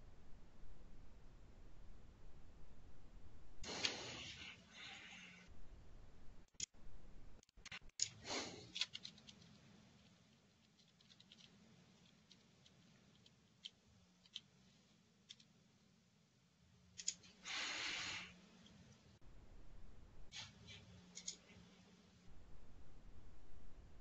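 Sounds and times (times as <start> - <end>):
mouse and keyboard clicks: 20.4 - 21.6.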